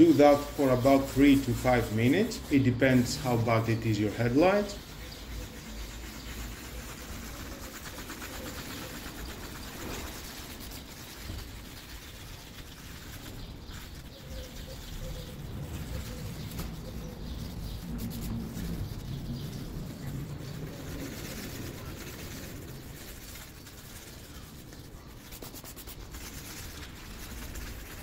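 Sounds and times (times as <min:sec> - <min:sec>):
sanding disc rubbing wet plastic: 0:00.0 - 0:28.0.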